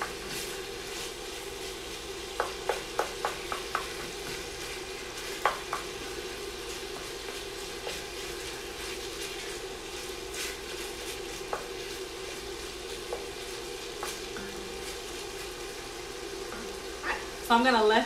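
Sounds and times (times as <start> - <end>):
ground beef sizzling in a pot: 0.0 - 18.0.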